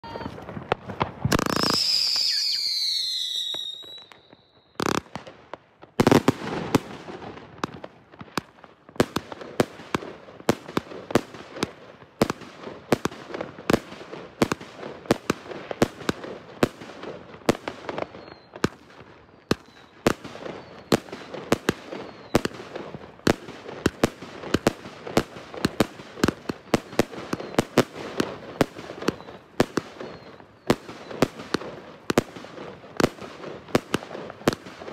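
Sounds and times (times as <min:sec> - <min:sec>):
firework hiss with falling whistle: 0:00.0 - 0:00.6, 0:01.2 - 0:04.8, 0:19.5 - 0:21.0, 0:21.9 - 0:22.5, 0:30.0 - 0:31.2
firework reports: 0:00.0 - 0:05.2
firework bursts popping overhead: 0:00.0 - 0:34.9
rapid firework shots: 0:08.4 - 0:34.9.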